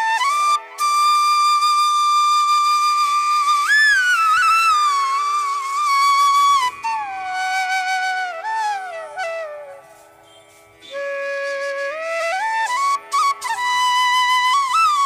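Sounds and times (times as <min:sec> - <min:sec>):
slow solo melody with pitch slides: 0:03.4 - 0:15.0.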